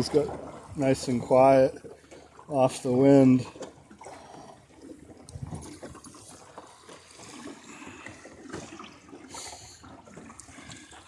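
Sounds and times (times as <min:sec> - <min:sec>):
water gurgling along a hull: 0:00.0 - 0:11.0.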